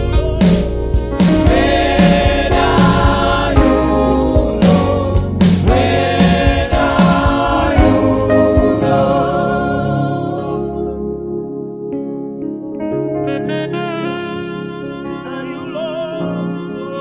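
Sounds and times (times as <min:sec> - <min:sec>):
steady drum beat: 0:00.0 - 0:09.3
choir singing: 0:00.1 - 0:11.1.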